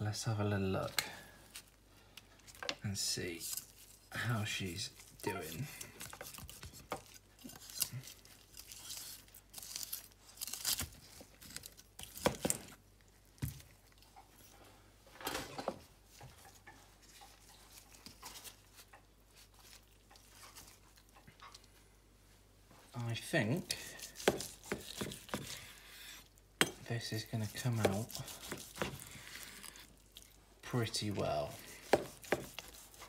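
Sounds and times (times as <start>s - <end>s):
knife slicing steak on wooden board: 24.0s - 26.2s, 27.8s - 29.2s, 31.6s - 33.0s.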